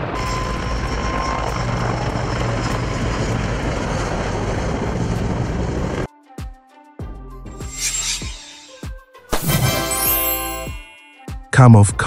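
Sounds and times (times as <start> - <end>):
helicopter rotor and engine noise: 0.0 - 6.1.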